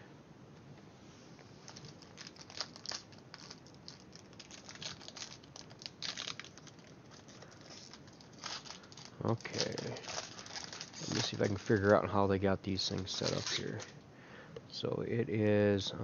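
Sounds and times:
packaging crinkling: 1.6 - 14.0.

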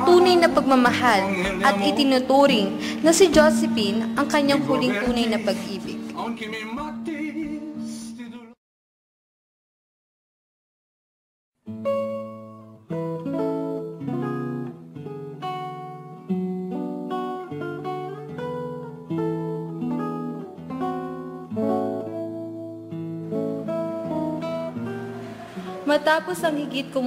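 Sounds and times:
acoustic guitar music: 0.0 - 8.6, 11.6 - 27.0.

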